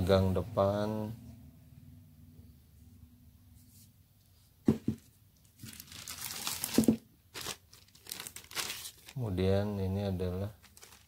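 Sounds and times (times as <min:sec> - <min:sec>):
hard parts knocking on table: 0:04.6 - 0:05.1, 0:06.7 - 0:07.0
plastic bag crinkling: 0:05.4 - 0:09.3, 0:10.4 - 0:11.0.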